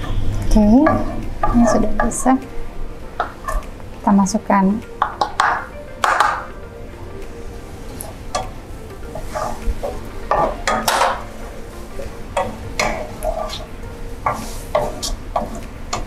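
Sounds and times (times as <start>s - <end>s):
onion sizzling: 0.0s - 16.0s
wooden spatula scraping saucepan: 9.1s - 16.0s.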